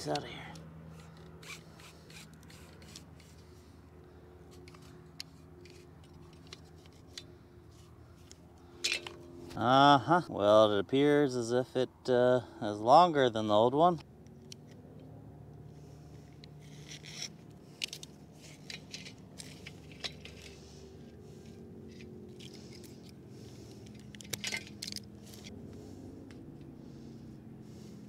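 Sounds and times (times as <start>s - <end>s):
clicks and scrapes of recoil starter: 0.1s - 3.6s, 4.5s - 9.3s, 15.6s - 25.6s.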